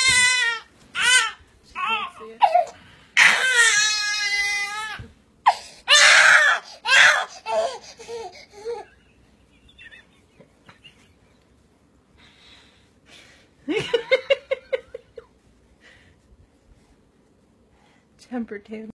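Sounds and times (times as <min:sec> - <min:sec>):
baby crying: 0:00.0 - 0:08.9.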